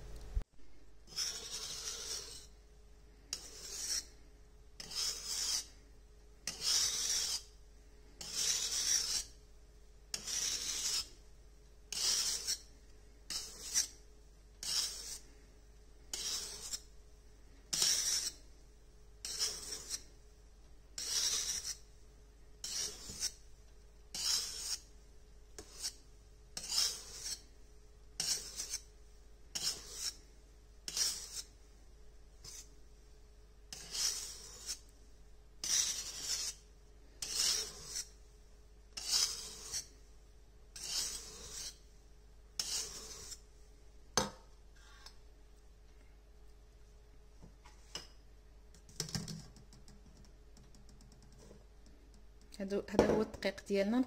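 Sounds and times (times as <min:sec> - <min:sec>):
whisk scraping a metal bowl: 0:01.0 - 0:02.6, 0:03.3 - 0:04.2, 0:04.8 - 0:05.8, 0:06.4 - 0:09.4, 0:10.1 - 0:11.2, 0:11.9 - 0:14.0, 0:14.6 - 0:15.4, 0:16.1 - 0:17.0, 0:17.7 - 0:18.5, 0:19.2 - 0:20.2, 0:21.0 - 0:22.0, 0:22.6 - 0:23.5, 0:24.1 - 0:25.0, 0:25.6 - 0:28.9, 0:29.5 - 0:31.7, 0:32.4 - 0:32.7, 0:33.7 - 0:35.0, 0:35.6 - 0:38.2, 0:38.9 - 0:40.0, 0:40.7 - 0:42.0, 0:42.6 - 0:43.5.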